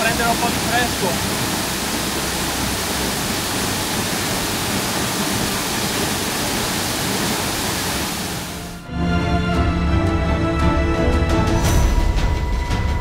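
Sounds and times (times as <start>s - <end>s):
waterfall rushing: 0.0s - 8.8s
music: 8.6s - 13.0s.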